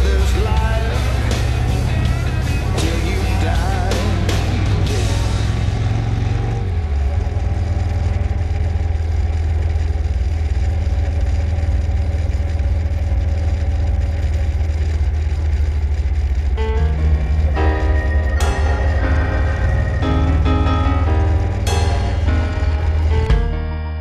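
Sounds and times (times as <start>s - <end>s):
road and wind noise: 0.0s - 23.4s
motorcycle engine rumbling: 0.0s - 24.0s.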